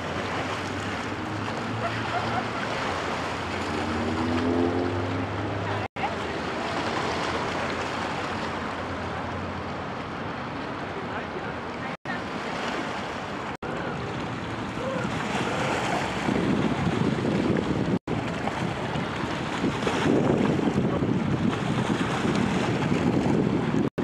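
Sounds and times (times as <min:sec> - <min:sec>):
choppy river water rushing: 0:00.0 - 0:24.0
wind buffeting microphone: 0:14.5 - 0:23.9.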